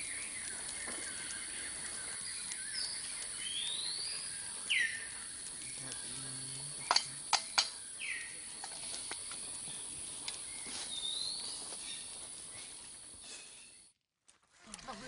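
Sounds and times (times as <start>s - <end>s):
high-pitched insect hiss: 0.0s - 13.8s
sharp clicks: 6.8s - 7.8s.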